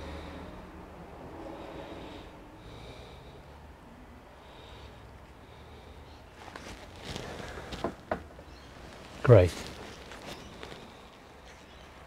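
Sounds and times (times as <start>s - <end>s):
breaths close to microphone: 0.0s - 8.0s, 8.9s - 11.7s.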